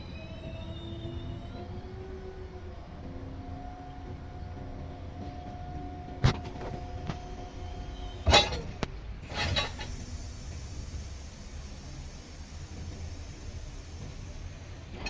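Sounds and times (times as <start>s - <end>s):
sharp metal clunk: 8.3s - 9.9s.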